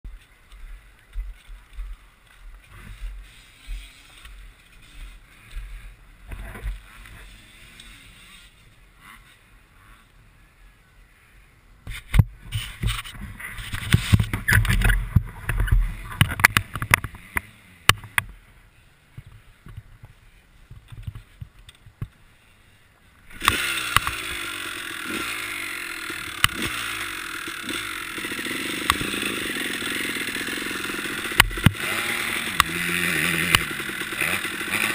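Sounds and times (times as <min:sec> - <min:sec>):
dirt bike engine running: 0:12.3 - 0:18.4, 0:23.3 - 0:34.9.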